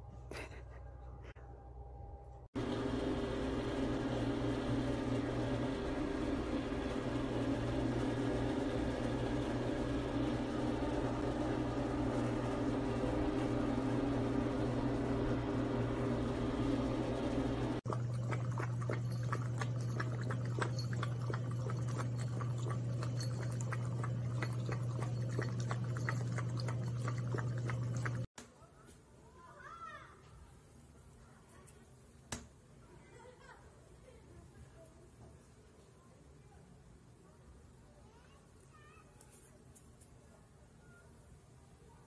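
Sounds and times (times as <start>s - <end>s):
steady mechanical hum: 0.0s - 28.3s
puppy lapping water: 17.8s - 28.3s.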